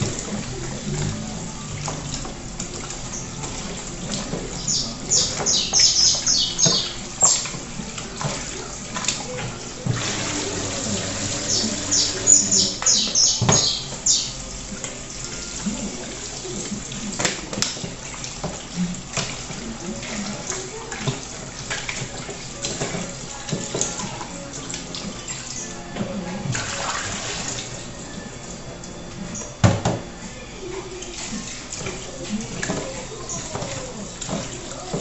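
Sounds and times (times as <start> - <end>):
tap running into sink: 29.4 - 30.0.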